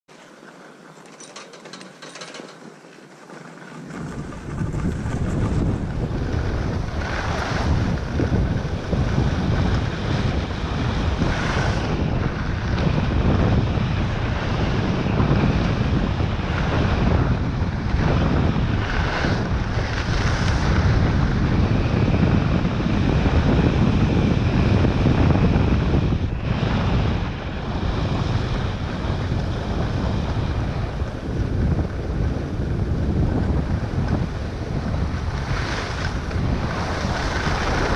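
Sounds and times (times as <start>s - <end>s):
wind rumbling on microphone: 0.4s - 37.9s.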